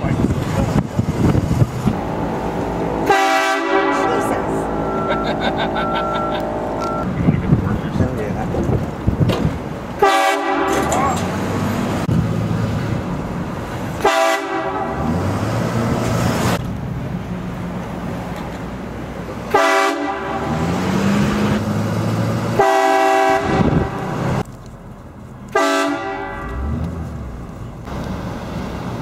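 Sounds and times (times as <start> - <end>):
train horn blasts: 2.0 - 5.3, 10.0 - 10.9, 14.0 - 15.1, 19.5 - 20.6, 22.6 - 24.2, 25.5 - 26.8.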